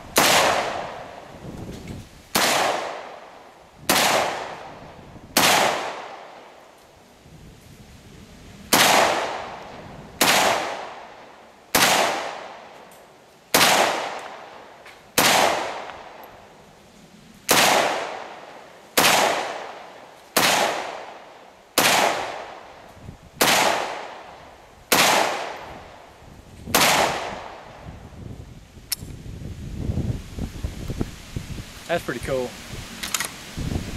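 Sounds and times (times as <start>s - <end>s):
rifle shots: 0.1s - 1.2s, 2.3s - 3.3s, 3.9s - 4.7s, 5.4s - 6.4s, 8.7s - 9.6s, 10.2s - 11.1s, 11.7s - 12.7s, 13.5s - 14.5s, 15.2s - 16.2s, 17.5s - 22.7s, 23.4s - 24.3s, 24.9s - 25.7s, 26.7s - 27.6s.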